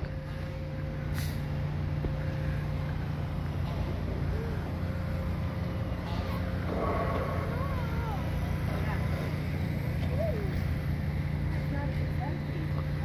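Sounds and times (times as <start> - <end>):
thin steady whine: 0.0 - 13.0
vehicle engine running: 0.0 - 13.0
short hiss: 1.1 - 1.5.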